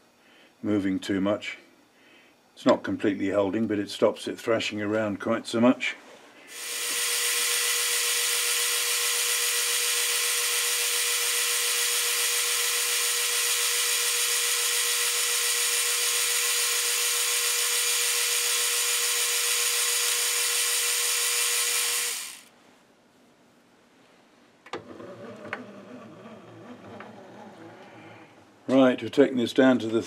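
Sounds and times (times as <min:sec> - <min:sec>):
metal lathe whining: 0:06.5 - 0:22.5.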